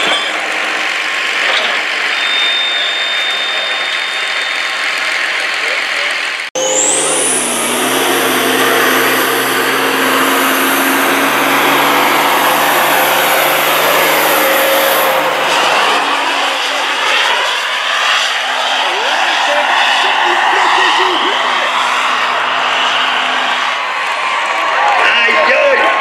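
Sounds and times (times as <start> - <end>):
diesel truck engine roaring: 0.0 - 26.0
high whistle: 2.0 - 5.0.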